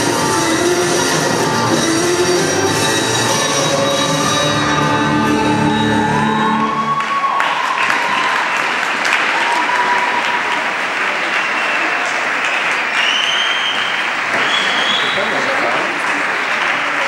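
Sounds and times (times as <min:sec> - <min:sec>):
skating routine music: 0:00.0 - 0:07.7
audience applauding: 0:06.0 - 0:17.0
high whistle: 0:13.0 - 0:15.4.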